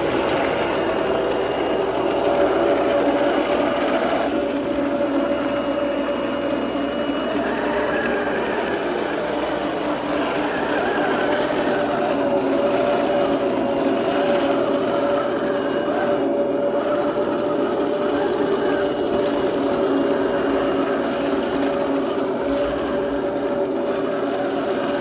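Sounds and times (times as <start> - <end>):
metal tracks rattling: 0.0 - 5.7
toy tank motor whine: 0.0 - 25.0.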